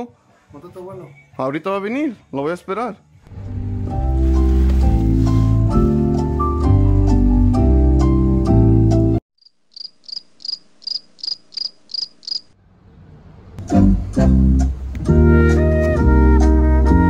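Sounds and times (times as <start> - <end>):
background music: 1.6 - 9.2, 13.6 - 17.0
cricket chirps sound effect: 9.4 - 12.5.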